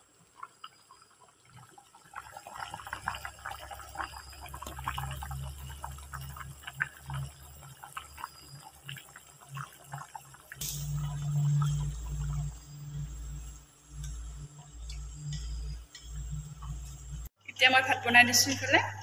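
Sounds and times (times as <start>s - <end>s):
curry bubbling and popping: 0.0s - 17.3s
low steady hum: 3.1s - 19.0s.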